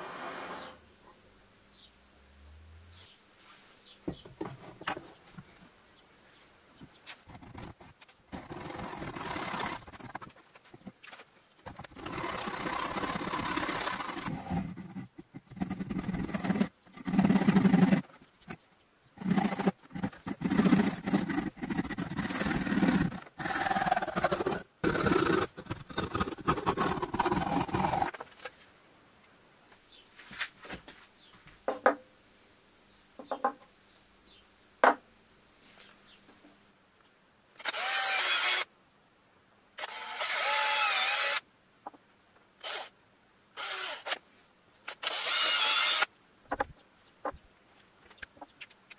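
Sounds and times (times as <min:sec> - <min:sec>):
hand saw rasping through wood: 0:08.4 - 0:10.3, 0:11.8 - 0:14.9, 0:15.5 - 0:18.0, 0:19.2 - 0:28.1.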